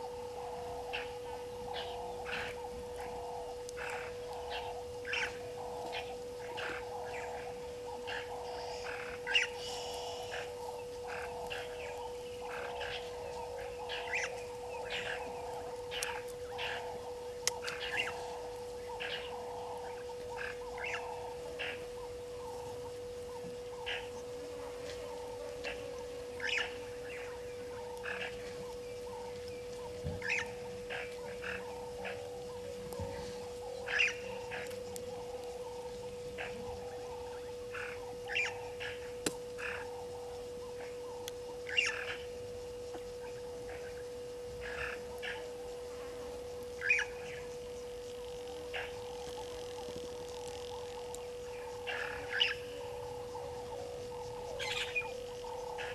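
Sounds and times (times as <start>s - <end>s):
steady low hum: 0.0s - 55.9s
chirping animal calls: 25.0s - 40.1s, 48.1s - 55.9s.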